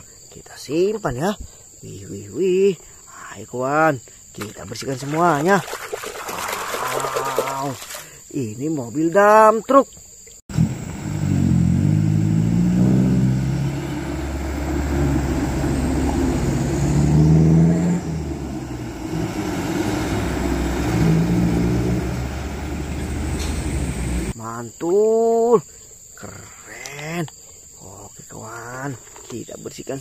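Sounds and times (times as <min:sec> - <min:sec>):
diesel truck engine revving: 0:10.5 - 0:24.4.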